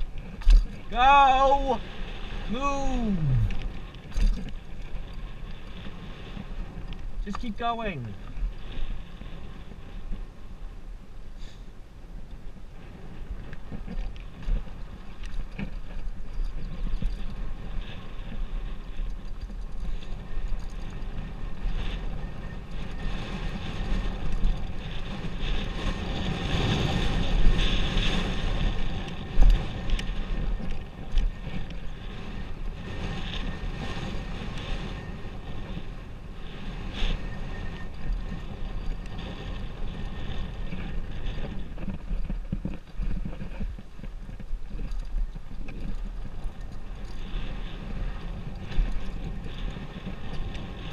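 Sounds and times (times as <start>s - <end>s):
bike rattling over bumps: 0.0s - 10.6s, 12.3s - 50.9s
wind rushing over microphone: 0.0s - 50.9s.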